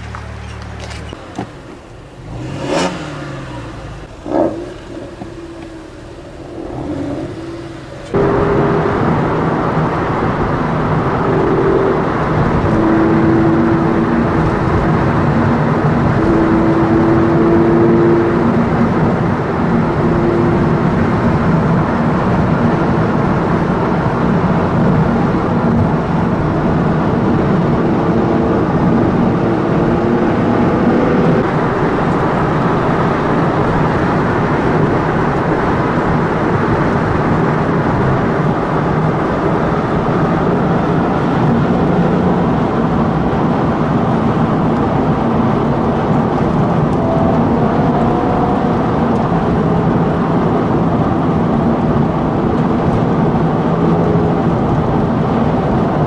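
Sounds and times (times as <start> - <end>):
car engine revving: 0.0 - 56.0
engine and road noise: 0.0 - 56.0.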